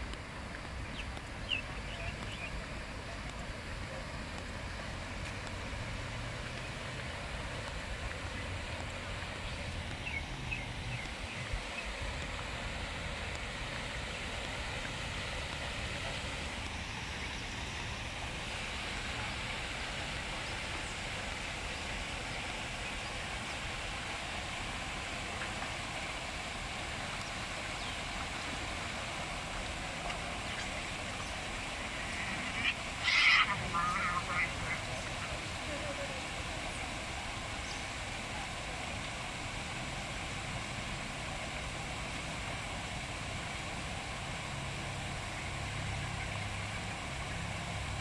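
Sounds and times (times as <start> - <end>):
water rushing from pipes: 0.0 - 48.0.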